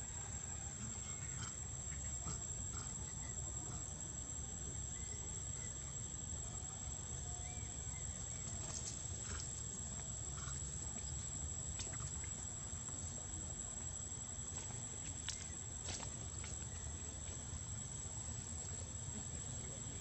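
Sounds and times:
high-pitched insect drone: 0:00.0 - 0:12.5
faint chirps: 0:00.0 - 0:13.2.

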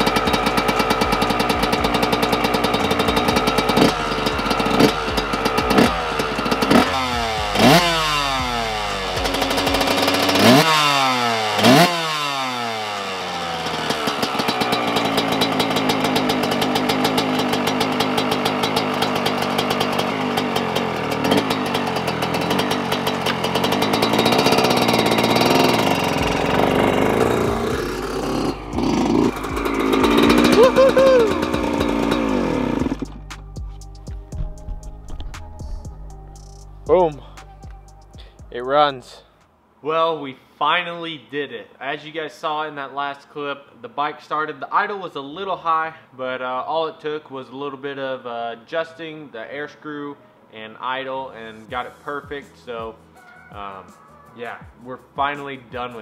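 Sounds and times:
dirt bike engine revving: 0:00.0 - 0:39.2.

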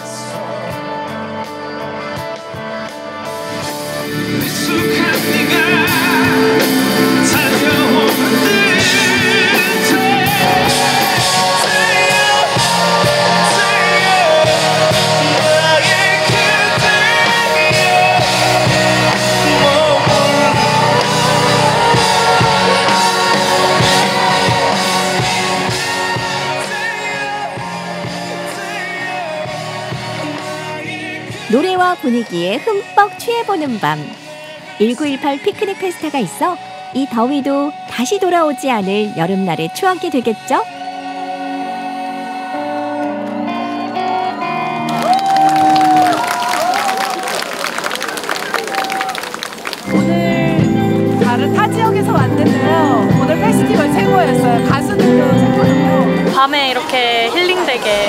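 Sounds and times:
man singing with vibrato: 0:00.0 - 0:01.5, 0:04.1 - 0:39.2, 0:40.0 - 0:43.2, 0:49.8 - 0:56.4
live pop-rock band: 0:00.0 - 0:58.0.

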